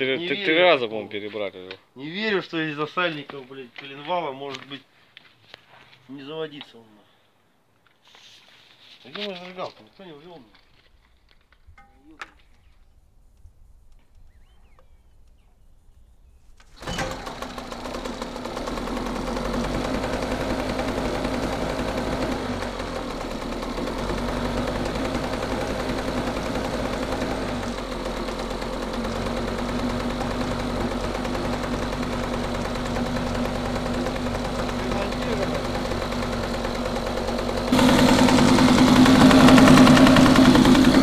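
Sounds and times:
outboard motor running: 16.8s - 41.0s.

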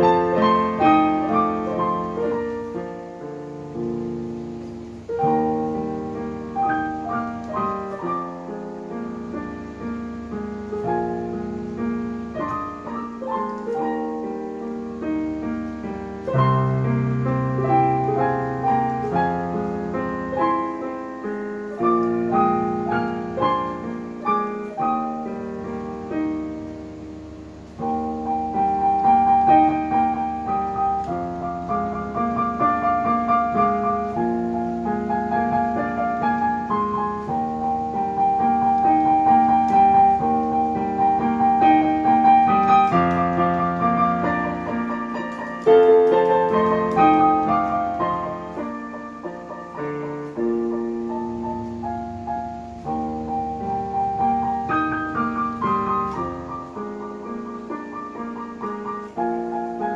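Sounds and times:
digital piano solo: 0.0s - 59.9s.

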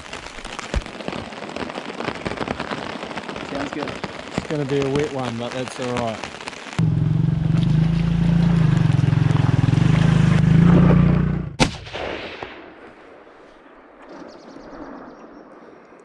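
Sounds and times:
quad bike engine running: 6.8s - 11.6s
sharp shot-like bang: 11.6s - 12.7s.

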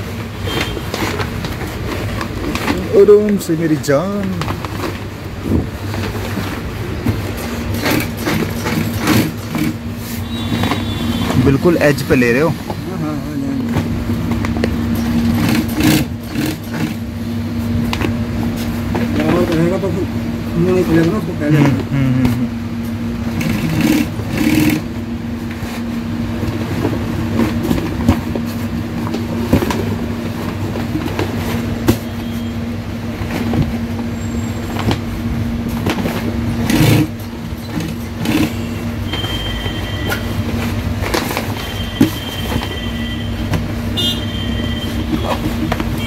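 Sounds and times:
industrial sewing machine stitching: 7.6s - 12.5s, 15.0s - 17.1s, 23.3s - 25.0s, 36.5s - 38.8s.

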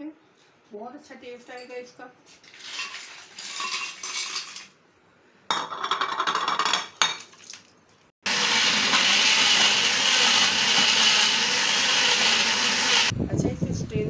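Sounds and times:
ice rattling into blender jar: 2.5s - 4.7s
electric blender running: 8.2s - 13.1s.

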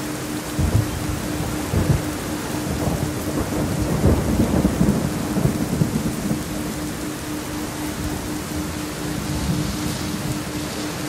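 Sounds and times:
steady rain: 0.0s - 11.0s
rumbling thunder: 0.6s - 7.0s.

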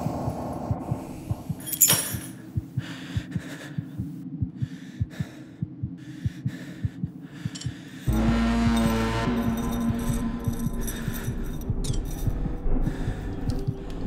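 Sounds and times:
fast pounding heartbeat: 0.0s - 1.7s, 2.4s - 14.0s
low droning tone: 8.1s - 14.0s.

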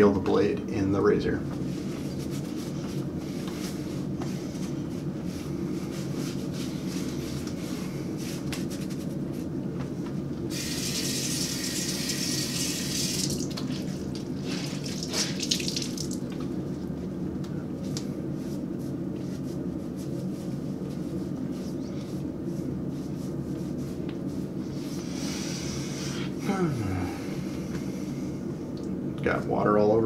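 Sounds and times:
steady low hum: 0.0s - 30.0s
splashing water: 14.8s - 16.2s.

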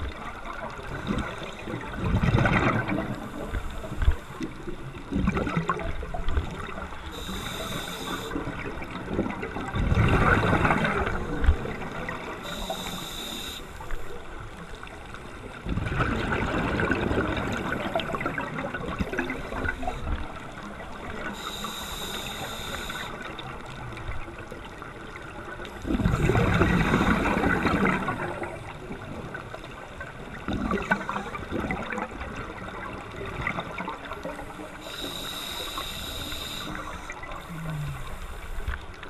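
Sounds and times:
regulator hissing inhalations: 7.1s - 8.4s, 12.4s - 14.1s, 21.3s - 23.2s, 34.8s - 38.7s
diver exhaling bubbles: 34.8s - 38.4s.

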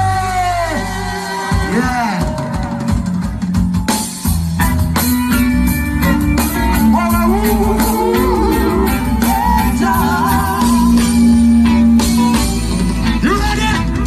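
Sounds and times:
bass line: 0.0s - 14.0s
live reggae band music: 0.0s - 14.0s
person singing: 6.8s - 11.6s.

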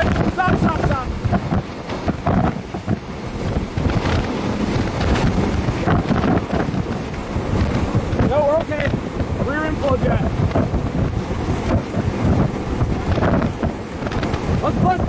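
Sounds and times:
strong wind on microphone: 0.0s - 15.0s.

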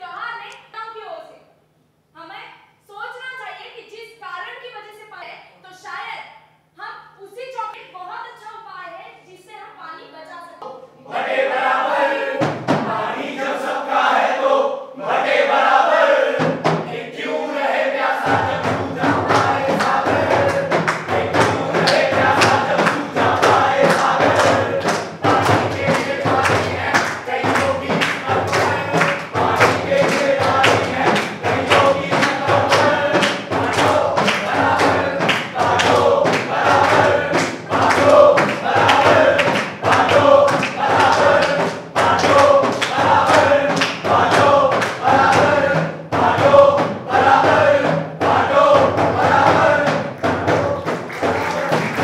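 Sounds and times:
group singing in chorus: 11.0s - 52.0s
hand-beaten frame drum: 11.5s - 13.5s, 15.1s - 52.0s.

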